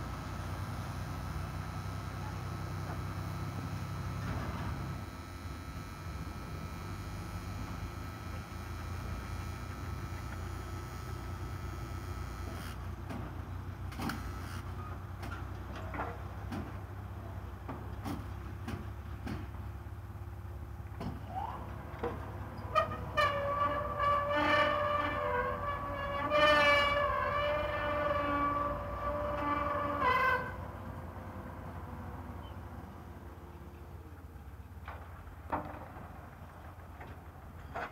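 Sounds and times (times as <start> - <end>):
loud horn-like tone: 0.0 - 12.8, 22.7 - 30.7
low machinery rumble: 0.0 - 37.9.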